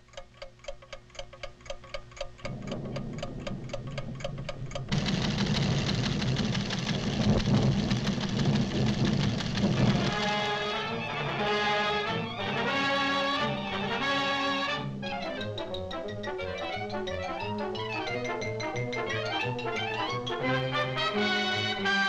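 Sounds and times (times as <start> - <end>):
seismograph ticking: 0.0 - 11.4, 15.0 - 20.4
low hum: 2.2 - 12.7
loud low rumble: 2.5 - 10.2.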